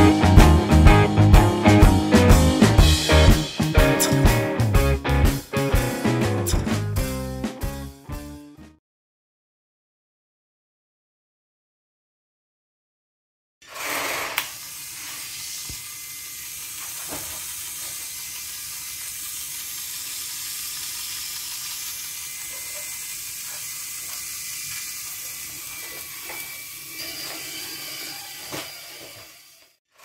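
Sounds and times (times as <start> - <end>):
small electric motor whine: 13.7 - 30.0.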